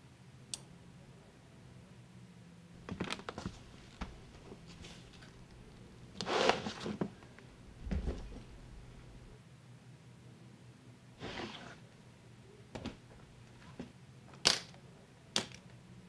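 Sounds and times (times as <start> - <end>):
faint low hum: 0.0 - 16.0
suitcase rustling scrape: 6.2 - 7.1, 11.2 - 11.8
dull thump: 7.8 - 8.6.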